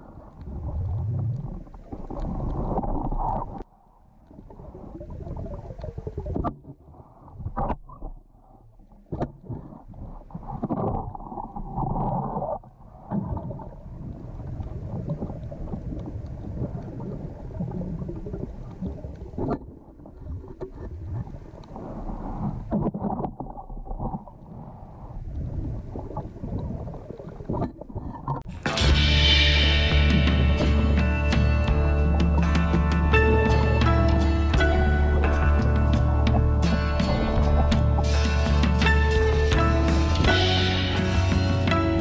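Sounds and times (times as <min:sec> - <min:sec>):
water rushing underwater: 0:00.0 - 0:42.0
background music: 0:28.5 - 0:42.0.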